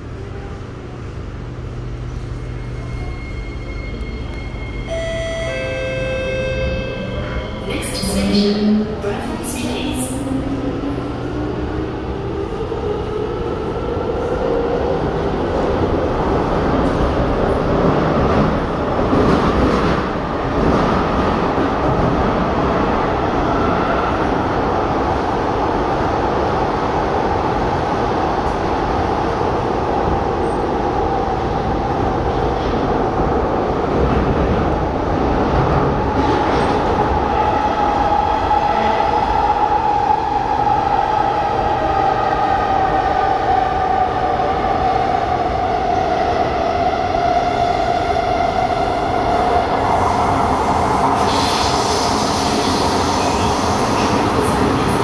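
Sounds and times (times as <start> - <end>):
train wheel and track rumble: 0.0 - 55.0.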